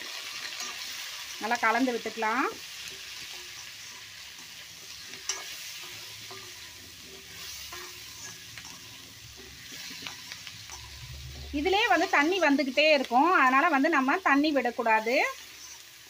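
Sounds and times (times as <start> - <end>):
food sizzling in hot oil: 0.0 - 16.0
spatula scraping and knocking pan: 2.8 - 13.0.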